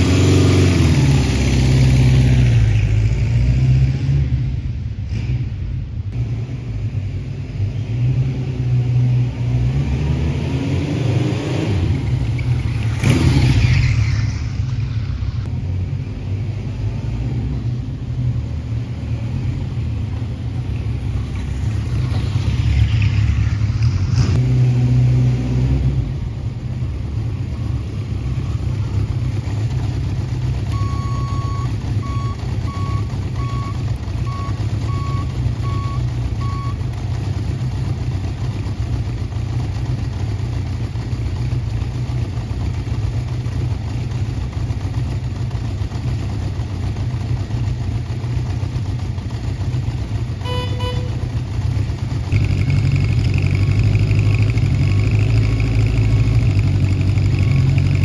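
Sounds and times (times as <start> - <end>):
motorcycle engine idling: 26.6 - 58.0
short beeps: 30.7 - 36.8, 50.5 - 51.3.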